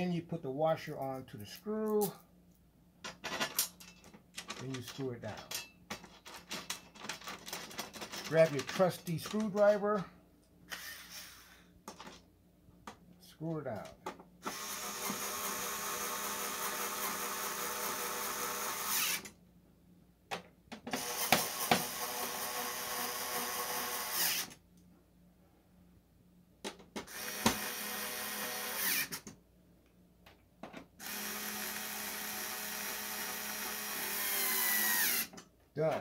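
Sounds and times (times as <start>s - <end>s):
electric screwdriver running: 14.4s - 19.3s, 20.9s - 24.6s, 27.1s - 29.2s, 31.0s - 35.3s.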